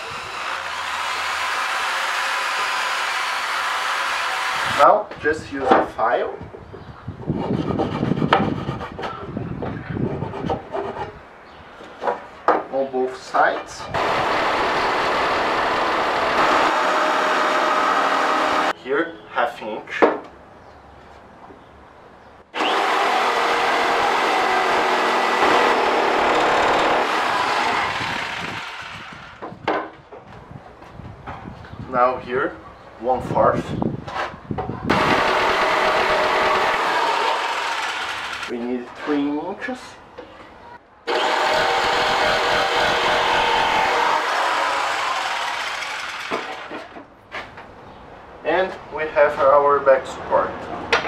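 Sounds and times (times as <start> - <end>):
electric jigsaw cutting wood: 0.0 - 4.8, 14.0 - 18.7, 22.6 - 29.4, 34.9 - 38.5, 41.1 - 46.7.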